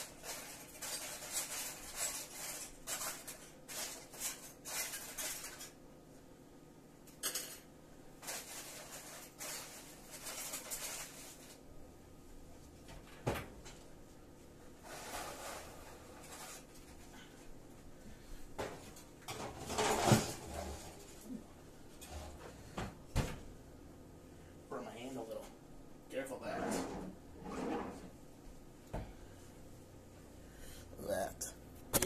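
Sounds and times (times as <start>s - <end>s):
pots and utensil clattering: 0.0s - 5.8s, 7.1s - 11.4s, 18.6s - 21.2s.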